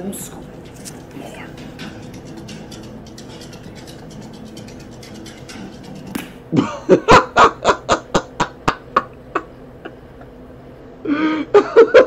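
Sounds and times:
man laughing: 0:06.5 - 0:10.4, 0:11.1 - 0:12.0.

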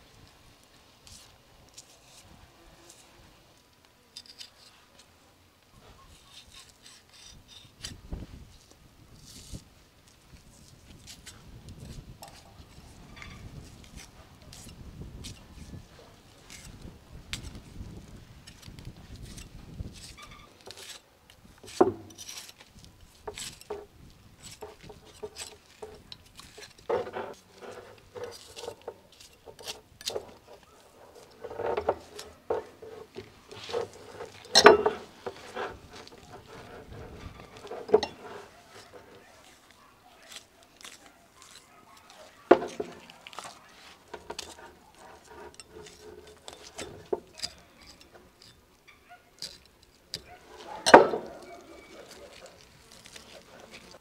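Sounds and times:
knife scraping skin off meat: 0:06.1 - 0:08.0, 0:16.4 - 0:16.8, 0:18.5 - 0:21.0, 0:21.6 - 0:48.6, 0:49.4 - 0:54.0.

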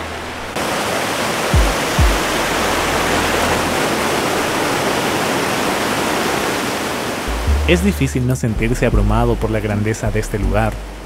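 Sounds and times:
water cascading over rocks: 0:00.0 - 0:11.0
background music with low bass: 0:01.6 - 0:04.0, 0:07.3 - 0:11.0.

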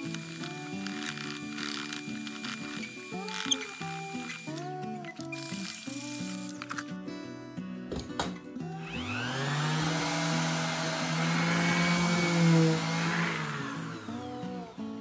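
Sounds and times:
orbital sander whining: 0:08.7 - 0:14.9.

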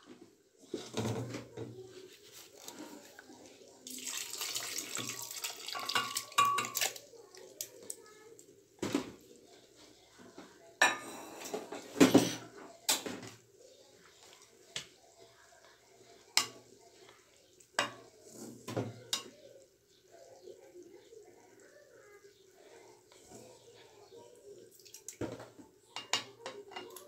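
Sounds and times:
kitchenware clinking and clattering: 0:00.0 - 0:01.8, 0:03.9 - 0:07.8, 0:08.8 - 0:09.3, 0:10.2 - 0:13.6, 0:16.3 - 0:16.7, 0:17.7 - 0:19.5, 0:24.9 - 0:27.0.

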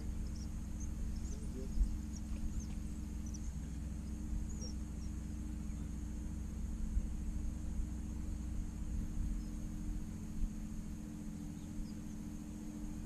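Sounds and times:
faint high chirps: 0:00.0 - 0:06.0, 0:11.2 - 0:13.0
steady low hum: 0:00.0 - 0:13.0.

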